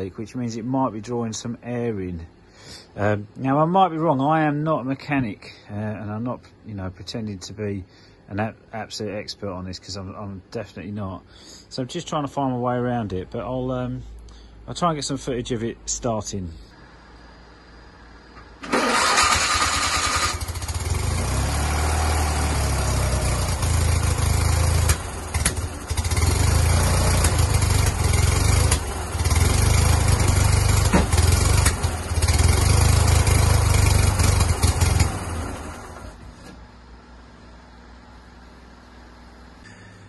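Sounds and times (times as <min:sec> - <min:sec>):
engine cranking: 0:18.6 - 0:36.2
engine running rough with pops: 0:20.3 - 0:36.6.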